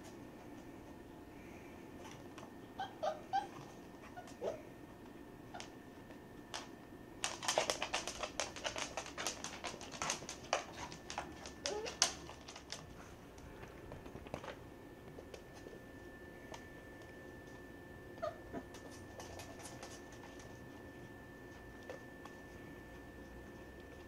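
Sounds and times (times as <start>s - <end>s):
puppy claws clicking on wood floor: 6.5s - 15.8s, 18.6s - 20.6s.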